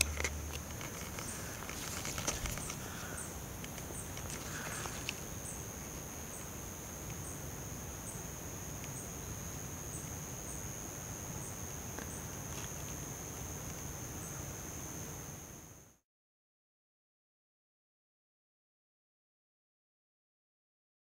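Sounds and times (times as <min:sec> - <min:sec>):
insect chirp: 0:00.0 - 0:16.0
insects high-pitched whine: 0:00.0 - 0:16.0.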